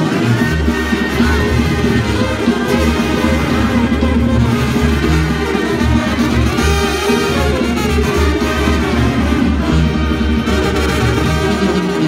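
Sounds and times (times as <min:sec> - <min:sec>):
brass band playing: 0:00.0 - 0:12.0.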